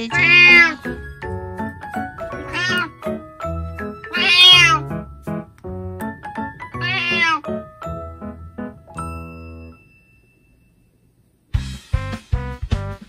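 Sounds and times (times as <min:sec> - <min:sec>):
cat meowing: 0:00.0 - 0:01.0, 0:02.2 - 0:03.1, 0:04.0 - 0:04.9, 0:06.7 - 0:07.6
plucked background music: 0:00.0 - 0:09.8.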